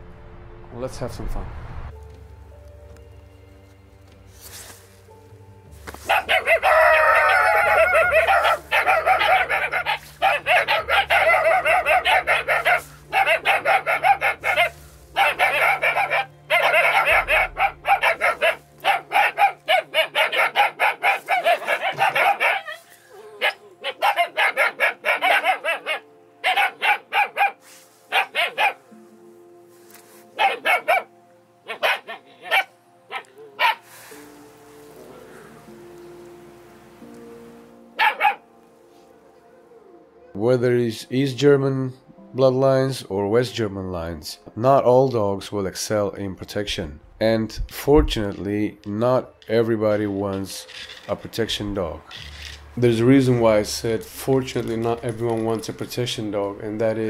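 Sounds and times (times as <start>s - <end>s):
puppies barking: 6.0s - 28.9s, 30.4s - 34.2s, 37.9s - 38.6s, 53.2s - 57.0s.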